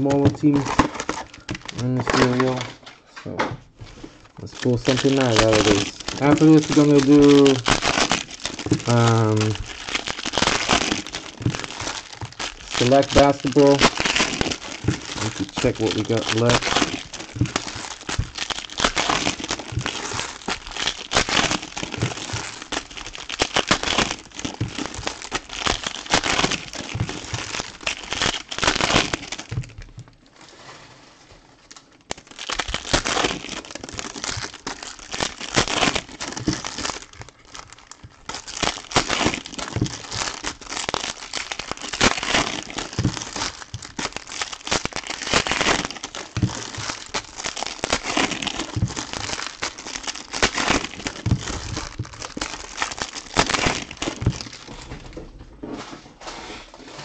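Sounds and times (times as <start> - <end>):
foil wrappers tearing and crinkling: 0.0 - 2.9, 3.9 - 30.2, 31.6 - 55.1.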